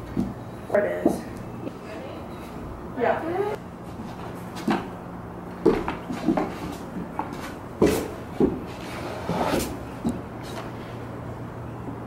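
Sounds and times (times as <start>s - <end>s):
shoes tapping on wooden deck: 5.6s - 8.8s
shoe scraping on wood: 5.6s - 10.7s.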